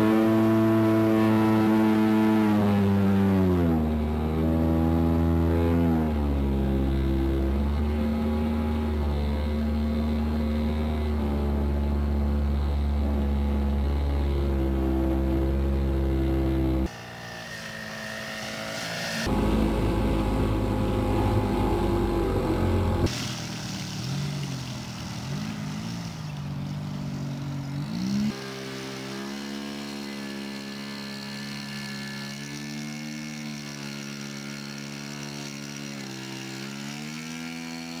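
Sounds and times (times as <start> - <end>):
model airplane motor running: 0.0 - 38.0
airflow noise: 16.8 - 24.0.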